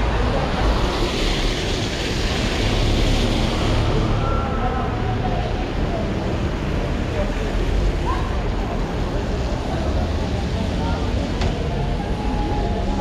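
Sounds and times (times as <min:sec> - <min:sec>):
low traffic rumble: 0:00.0 - 0:13.0
tyres hissing on wet road: 0:00.0 - 0:13.0.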